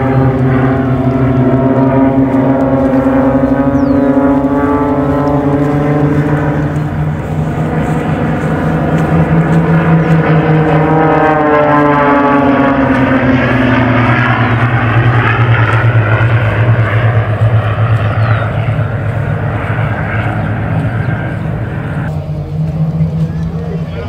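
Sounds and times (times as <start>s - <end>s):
propeller airplane flying past: 0.0s - 24.0s.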